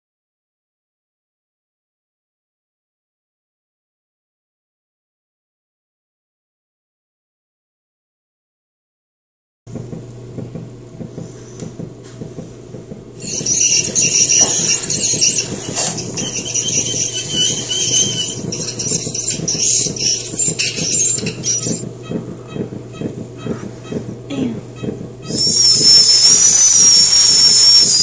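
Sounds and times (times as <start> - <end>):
steady low hum: 9.7 - 28.0
dental scaler squealing: 13.2 - 24.0, 24.8 - 28.0.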